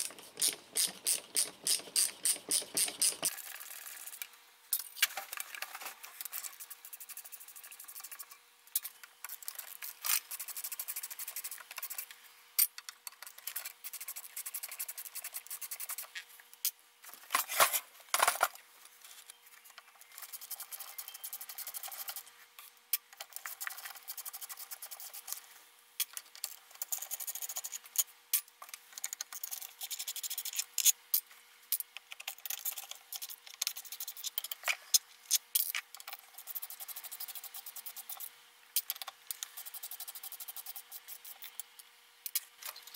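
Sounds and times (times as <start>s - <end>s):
screwdriver bit grinding in screws: 0.0s - 3.4s.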